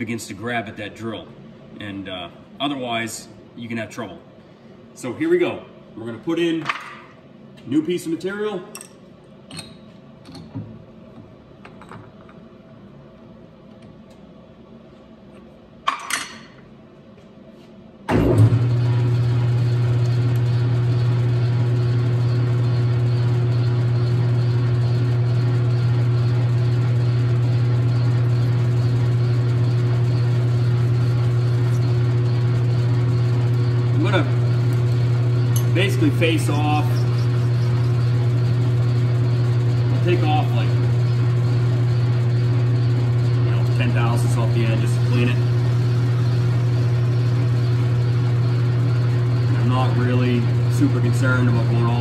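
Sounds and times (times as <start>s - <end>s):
lathe running with steady hum: 18.1s - 52.0s.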